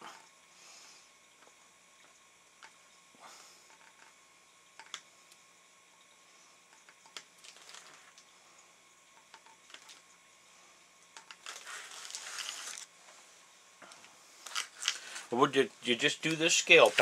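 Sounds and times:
small clicks and taps: 0:04.8 - 0:05.4
tissue paper crinkling: 0:07.4 - 0:08.1, 0:11.4 - 0:12.9.

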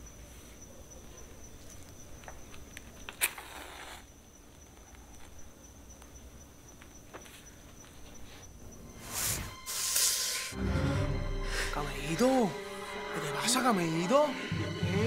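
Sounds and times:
crickets chirping: 0:00.0 - 0:15.0
match striking and flaring: 0:03.1 - 0:04.1, 0:09.0 - 0:10.6.

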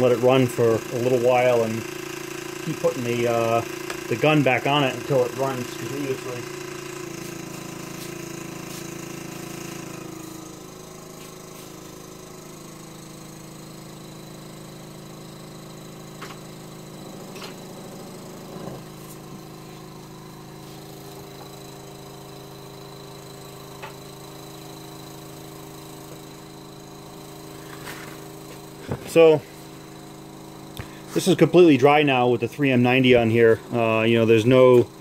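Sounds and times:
air compressor running: 0:00.0 - 0:35.0.

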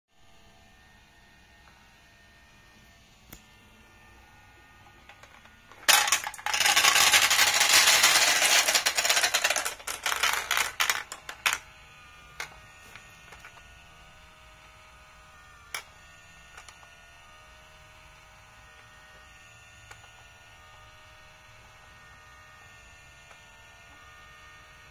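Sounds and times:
marbles rattling down plastic track: 0:05.0 - 0:11.7, 0:13.3 - 0:13.6.

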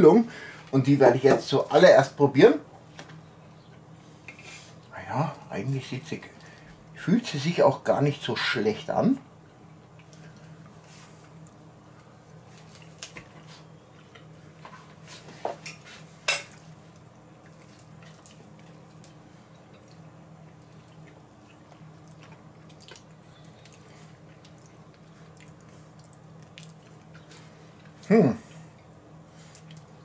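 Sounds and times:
faint low hum: 0:00.0 - 0:30.0.

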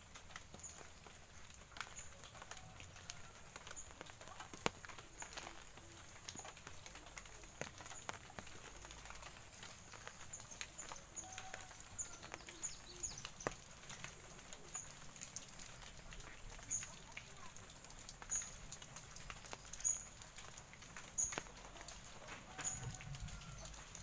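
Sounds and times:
footsteps on wet path: 0:00.0 - 0:14.7
small birds chirping and whistling: 0:19.5 - 0:20.2.

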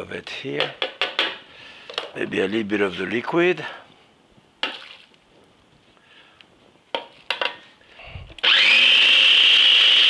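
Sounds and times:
food processor whining: 0:08.4 - 0:10.0.

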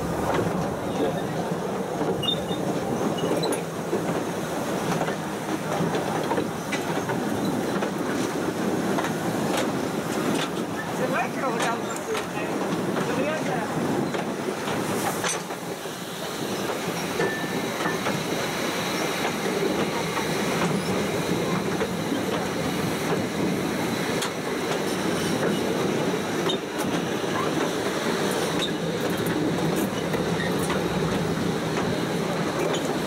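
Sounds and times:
train wheels rumbling on track: 0:00.0 - 0:33.0.

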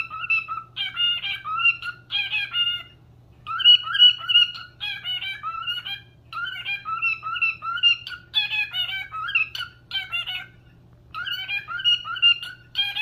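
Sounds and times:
cockatiel whistling: 0:00.0 - 0:13.0.

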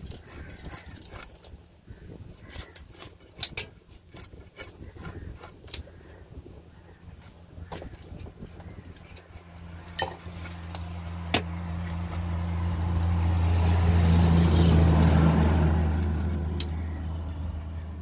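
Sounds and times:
vehicle engine passing: 0:09.4 - 0:18.0.

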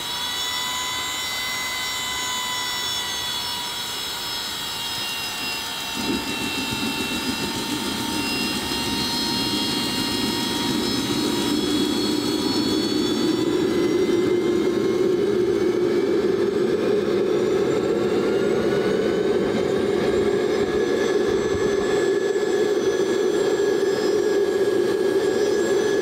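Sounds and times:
jet turbine starter whine: 0:00.0 - 0:26.0
turbine rushing rumble: 0:05.4 - 0:26.0.

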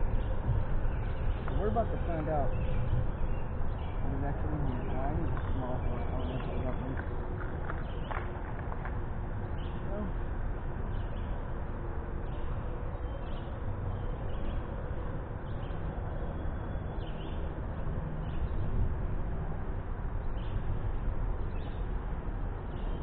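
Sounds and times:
low outdoor background noise: 0:00.0 - 0:23.0.

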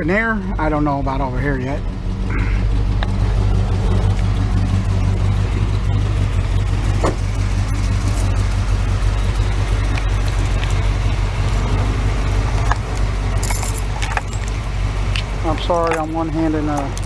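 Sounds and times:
pickup engine idling: 0:00.0 - 0:17.0
keys jingling: 0:07.6 - 0:08.6, 0:09.2 - 0:11.7, 0:12.6 - 0:17.0.

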